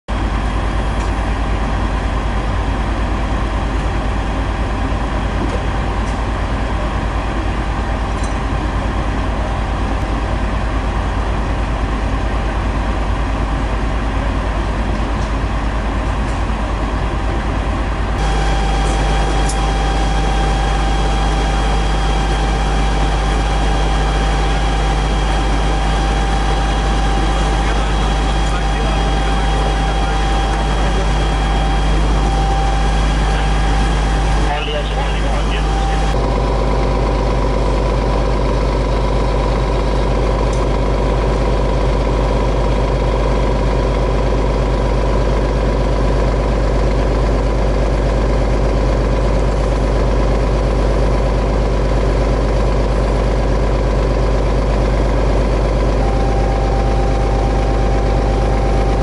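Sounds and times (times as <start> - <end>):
fire engine running: 0.1 - 59.0
steady whine: 0.1 - 59.0.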